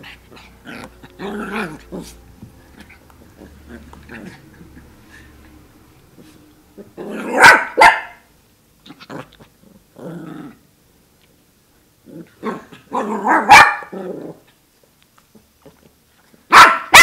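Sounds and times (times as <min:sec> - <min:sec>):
puppy growling: 0:00.0 - 0:05.7, 0:06.7 - 0:07.6, 0:08.8 - 0:10.7, 0:12.0 - 0:14.6
puppy barking: 0:07.2 - 0:08.3, 0:12.5 - 0:14.0, 0:16.5 - 0:17.0.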